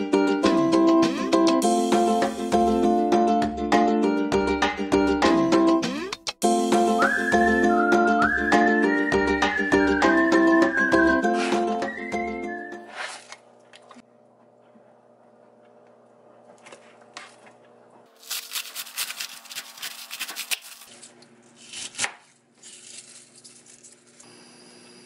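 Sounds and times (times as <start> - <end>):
plastic packaging rustling: 18.1 - 21.7, 22.6 - 24.2
knife cutting cabbage: 18.1 - 24.2.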